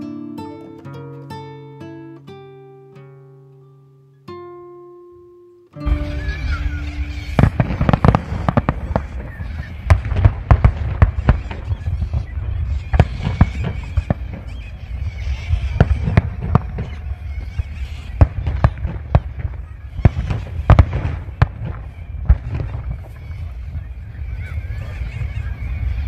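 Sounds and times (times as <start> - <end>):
fireworks bangs and crackles: 5.8 - 26.0.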